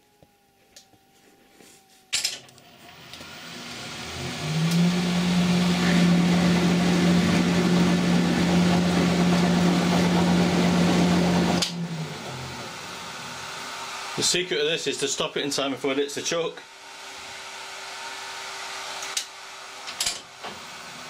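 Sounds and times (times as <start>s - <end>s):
lathe humming: 2.7s - 14.4s, 16.6s - 21.0s.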